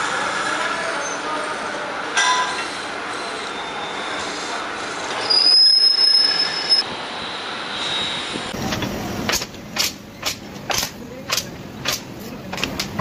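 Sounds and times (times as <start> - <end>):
drill press squealing into metal: 5.1 - 6.8
sharp metal clicks: 9.3 - 13.0.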